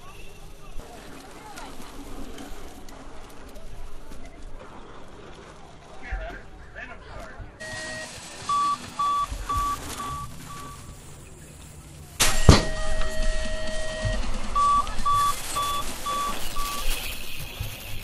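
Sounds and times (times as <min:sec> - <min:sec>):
short electronic beeps: 0:07.6 - 0:11.0, 0:12.2 - 0:17.4
loud metal clang: 0:12.2 - 0:13.0
ringing tone: 0:12.2 - 0:17.4.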